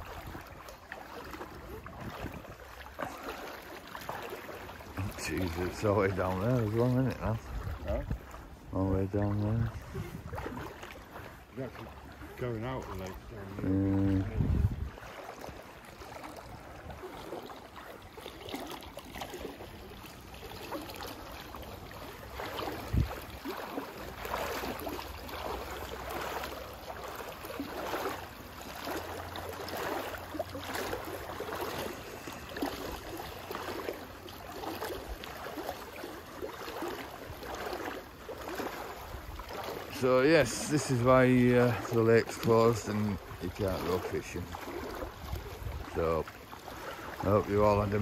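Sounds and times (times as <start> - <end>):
floodwater running: 0.0 - 48.0
wind buffeting microphone: 1.6 - 2.6, 7.1 - 8.8, 9.4 - 10.8, 13.2 - 15.6, 22.7 - 23.4, 45.2 - 46.0.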